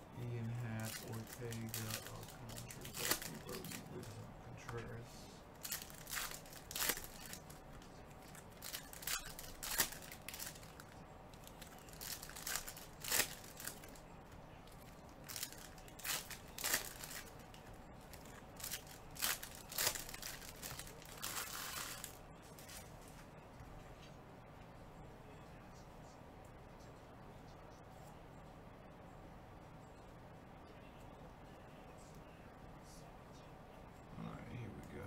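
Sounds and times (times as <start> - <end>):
wrappers tearing and crinkling: 0.4 - 4.2, 5.6 - 7.6, 8.2 - 14.0, 15.2 - 17.4, 18.1 - 22.9.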